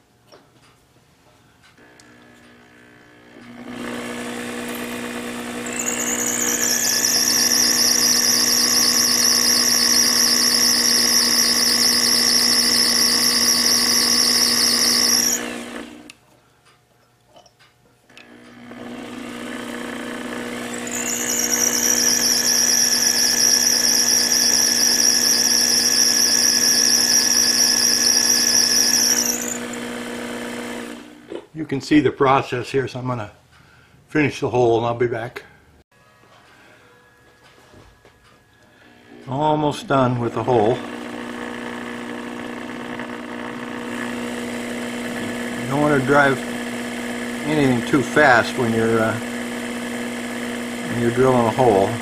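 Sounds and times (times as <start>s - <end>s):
lathe motor running: 1.8s - 16.1s, 18.2s - 31.4s, 39.0s - 52.0s
high steady drill squeal: 3.6s - 16.1s, 18.8s - 30.9s, 40.3s - 52.0s.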